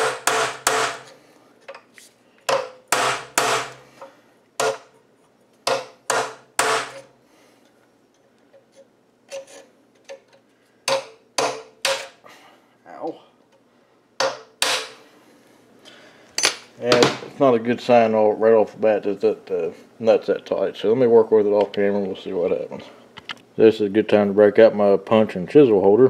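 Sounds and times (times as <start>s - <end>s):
hammer striking steel punch: 0.0s - 1.1s, 2.5s - 3.8s, 5.6s - 7.0s.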